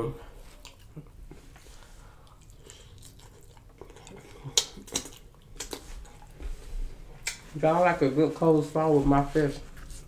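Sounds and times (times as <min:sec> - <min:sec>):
quiet chewing: 0:00.3 - 0:07.5.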